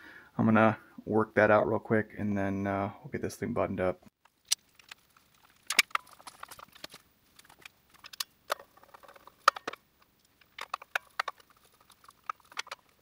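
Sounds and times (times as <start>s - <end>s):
plastic pieces clicking: 4.4s - 13.0s.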